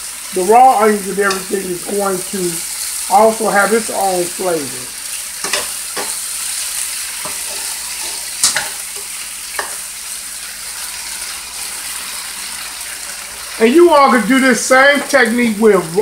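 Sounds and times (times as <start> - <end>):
food sizzling in a frying pan: 0.0 - 16.0.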